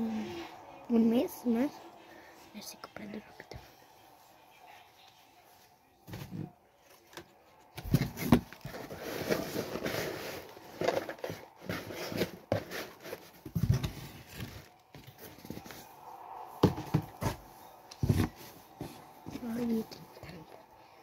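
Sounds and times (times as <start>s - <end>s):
paper box rustling: 6.9s - 16.0s.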